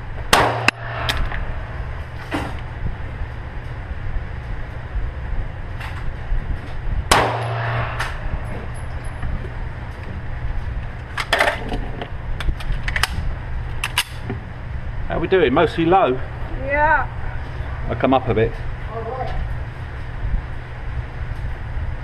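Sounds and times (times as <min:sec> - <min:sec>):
steady low hum: 0:00.0 - 0:22.0
loud echoing gunshot: 0:00.3 - 0:02.6, 0:07.1 - 0:08.7.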